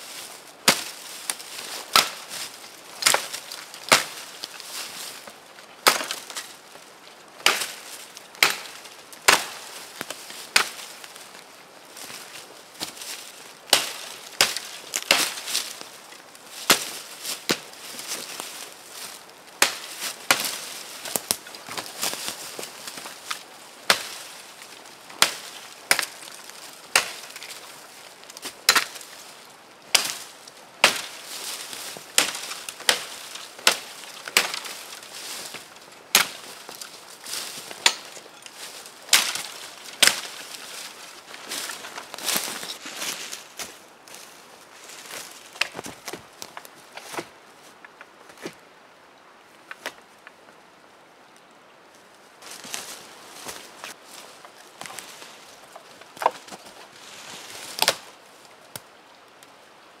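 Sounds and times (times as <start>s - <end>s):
hatchet chopping log: 8.4s - 9.6s, 28.7s - 28.9s.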